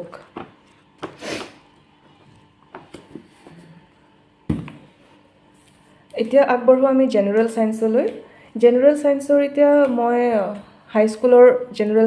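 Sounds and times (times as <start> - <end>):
book thumping down: 4.5 - 4.9.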